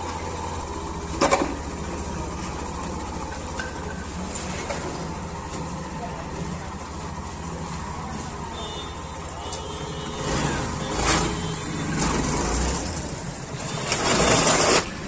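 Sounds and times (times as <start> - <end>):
motorcycle engine idling: 0.0 - 11.9.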